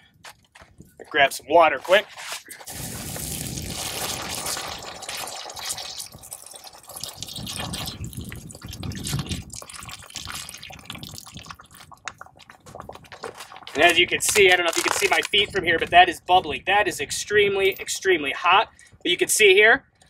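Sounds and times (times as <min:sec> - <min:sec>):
water splashing on hot slag: 0:02.6 - 0:15.3.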